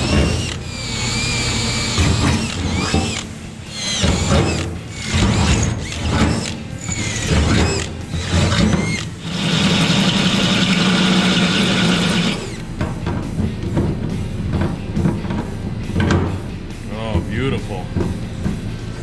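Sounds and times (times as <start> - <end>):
cordless drill drilling metal: 0.0 - 12.6
hole saw cutting: 0.0 - 12.6.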